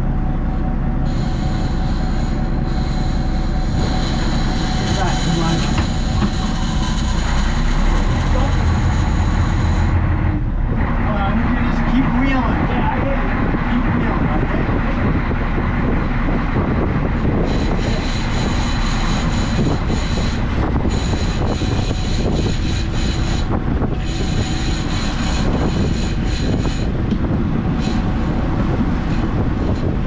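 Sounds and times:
boat engine running: 0.0s - 30.0s
wind and water noise: 0.0s - 30.0s
thin high whine: 1.0s - 10.4s, 17.1s - 30.0s.

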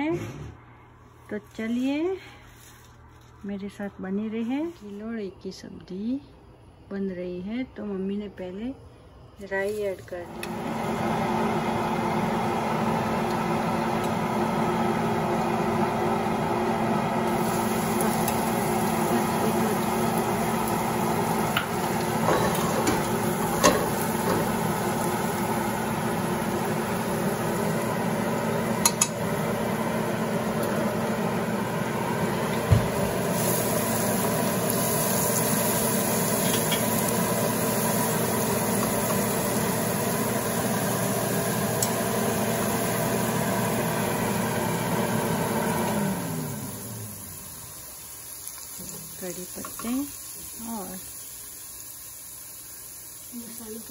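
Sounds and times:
steady mechanical hum: 0.0s - 53.9s
paste sizzling in hot oil: 17.2s - 31.3s, 32.2s - 43.3s, 47.0s - 53.9s.

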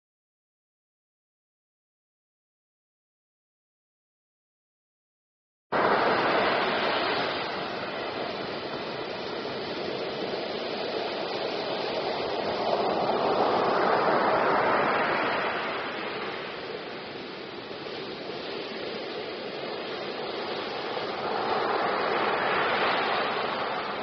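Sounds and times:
ocean surf breaking on shore: 5.7s - 24.0s.

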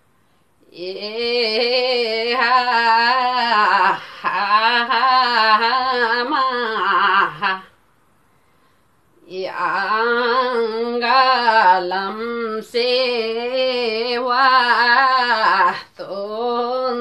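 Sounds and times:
woman singing unaccompanied: 0.6s - 7.8s, 9.2s - 17.0s.

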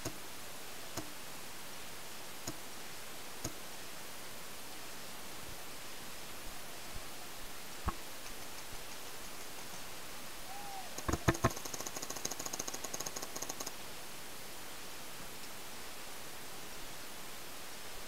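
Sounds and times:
microphone hiss: 0.0s - 18.0s
rapid faint ticking: 11.0s - 13.8s.

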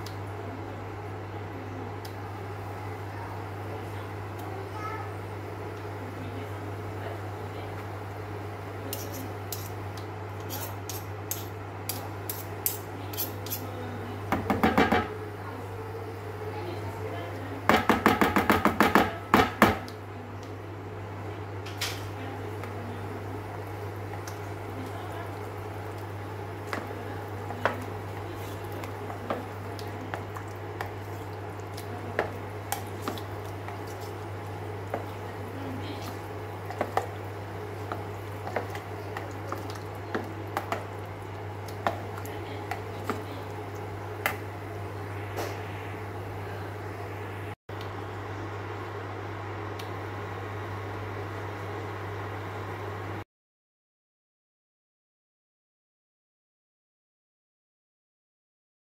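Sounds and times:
steady low hum: 19.1s - 53.2s
spoon stirring thick sauce: 26.7s - 44.4s.

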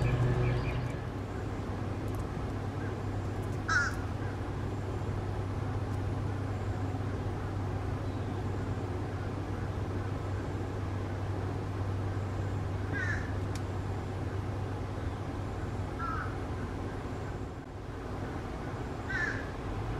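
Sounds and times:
low hum: 0.0s - 3.6s.

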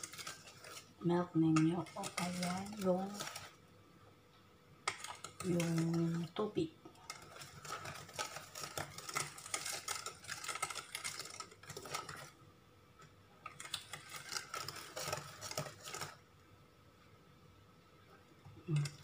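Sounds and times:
whisk beating batter in metal bowl: 0.0s - 3.6s, 4.8s - 12.4s, 13.4s - 16.2s.

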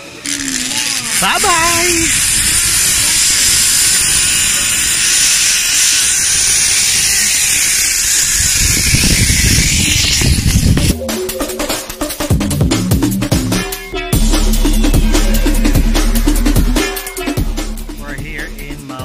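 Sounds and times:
zipline pulley running on cable: 0.0s - 11.0s
wind rumbling on microphone: 0.2s - 11.0s
music with a beat: 10.7s - 19.0s.

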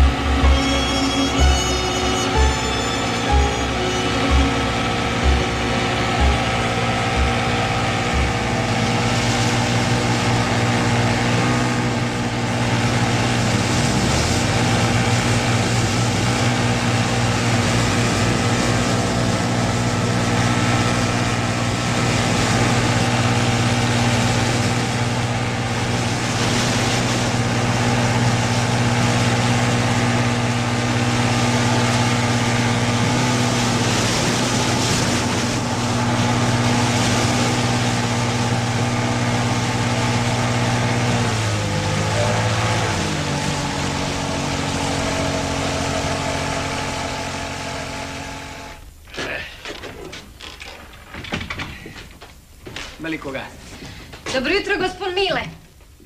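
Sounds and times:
motorboat engine droning: 0.0s - 52.6s
low thuds: 4.2s - 10.1s.

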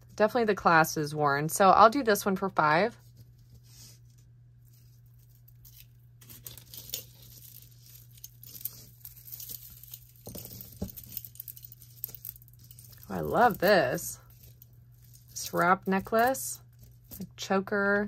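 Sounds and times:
jewelry chains and beads clinking: 5.6s - 17.3s.

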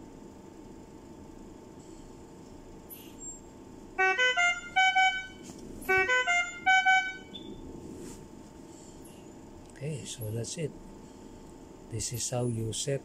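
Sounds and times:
ventilator alarm beeps: 2.9s - 7.7s.

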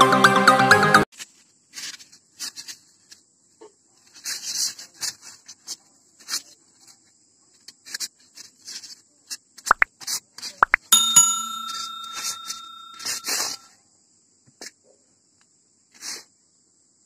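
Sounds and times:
foam blocks rubbing and scraping: 4.0s - 6.5s.

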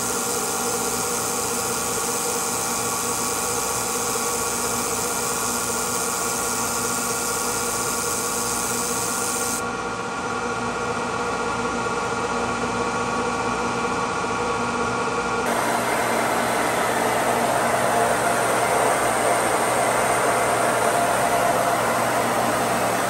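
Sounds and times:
high hiss: 0.0s - 9.6s, 15.5s - 23.0s
milling machine hum: 0.0s - 9.7s, 15.5s - 23.0s
end mill grinding steel: 15.5s - 23.0s.

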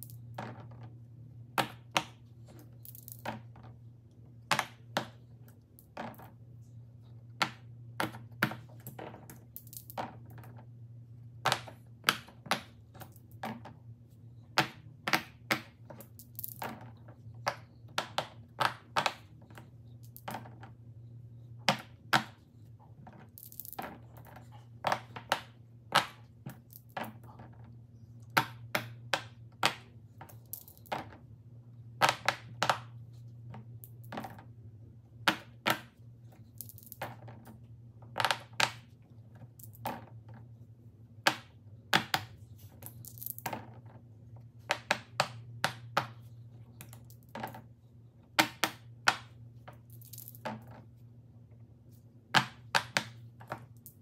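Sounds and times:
faint low hum: 0.0s - 54.0s
dice rattling and clattering: 48.4s - 50.8s.

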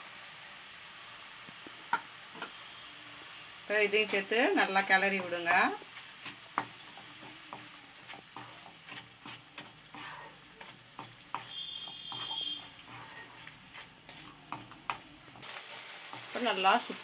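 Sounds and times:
wooden spatula scraping pan: 3.9s - 17.0s
wet mixture bubbling: 5.0s - 15.5s.

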